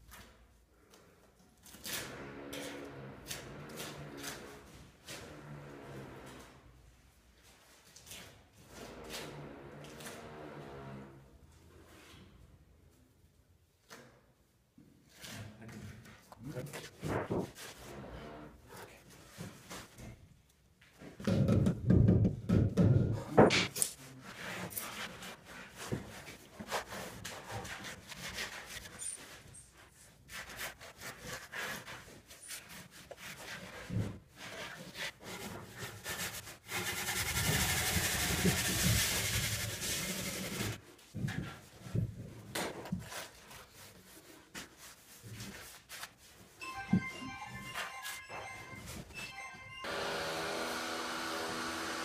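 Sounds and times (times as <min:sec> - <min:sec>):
steady rasping scrape: 0:24.0 - 0:40.8.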